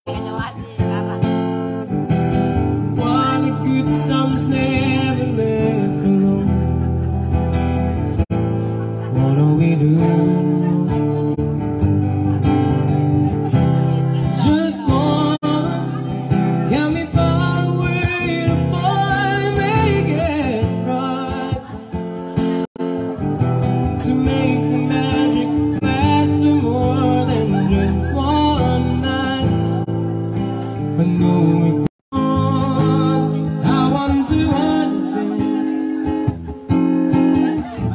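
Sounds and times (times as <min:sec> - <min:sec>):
amplified acoustic guitar: 0:00.0 - 0:37.9
man singing: 0:02.6 - 0:06.9, 0:09.0 - 0:12.1, 0:12.8 - 0:37.9.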